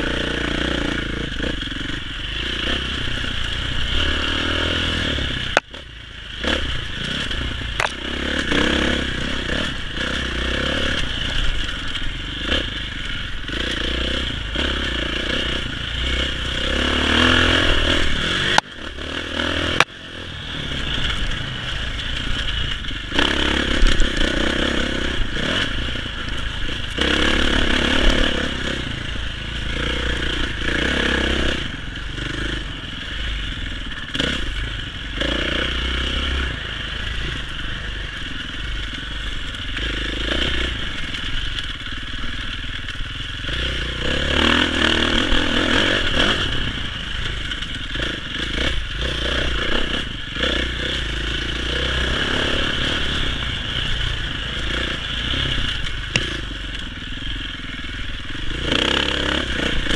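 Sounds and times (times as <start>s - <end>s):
dirt bike engine revving: 0.0s - 59.9s
rattle and clatter from riding: 37.0s - 59.9s.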